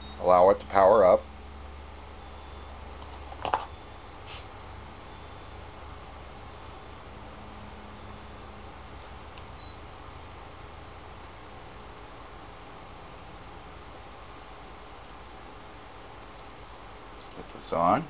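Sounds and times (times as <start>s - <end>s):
stepped beeps: 0.0s - 0.2s, 2.2s - 2.7s, 3.6s - 4.2s, 5.1s - 5.6s, 6.5s - 7.1s, 8.0s - 8.5s, 9.4s - 10.0s
short high electronic beeps: 2.2s - 2.7s, 3.7s - 4.2s, 5.1s - 5.6s, 6.5s - 7.0s, 8.0s - 8.5s, 9.4s - 10.0s.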